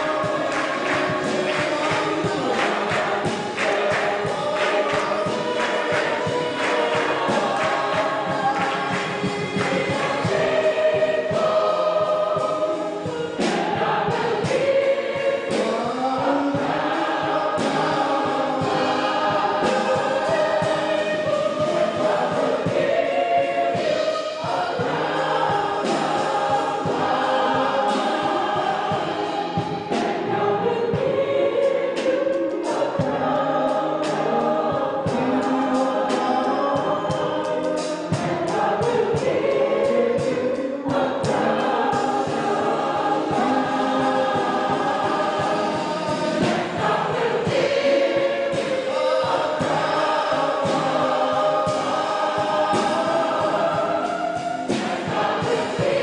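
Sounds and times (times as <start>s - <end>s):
mixed choir singing: 0.0s - 56.0s.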